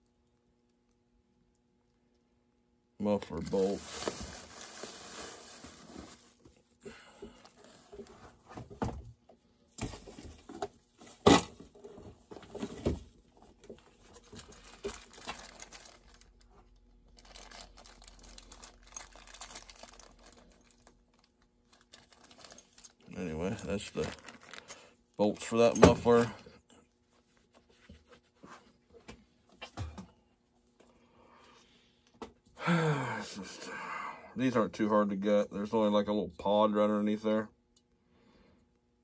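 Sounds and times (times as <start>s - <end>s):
plastic and paper packaging crinkling: 3.2s - 6.6s, 13.6s - 26.2s.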